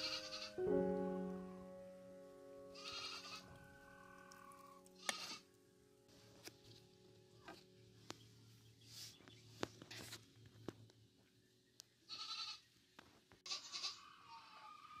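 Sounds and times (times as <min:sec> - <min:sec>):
faint animal cries: 0:00.0 - 0:00.6, 0:02.8 - 0:05.4, 0:13.5 - 0:15.0.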